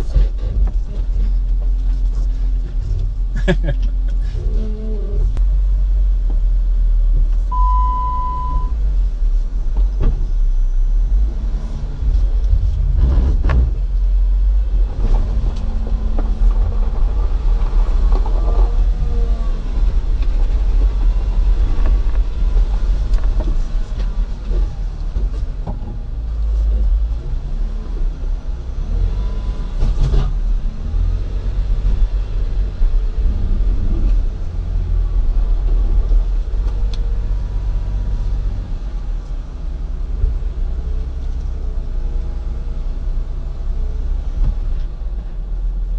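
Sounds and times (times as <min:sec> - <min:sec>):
vehicle engine low rumble: 0:00.0 - 0:45.9
short beep: 0:07.5 - 0:08.8.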